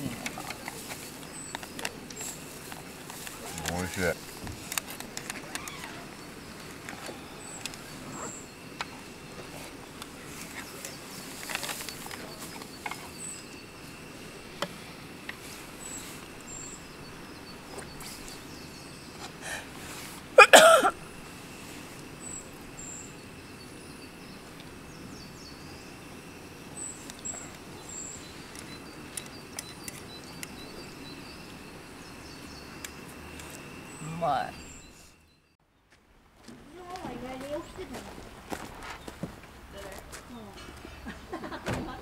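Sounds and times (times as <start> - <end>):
person sneezing: 20.4 - 21.0.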